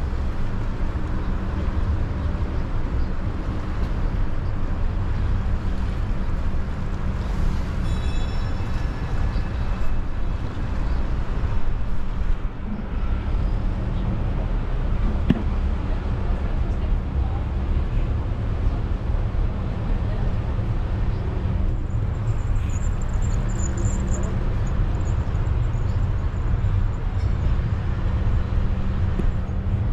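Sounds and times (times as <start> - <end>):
rolling road noise: 0.0 - 29.9
high ringing tone: 7.8 - 8.8.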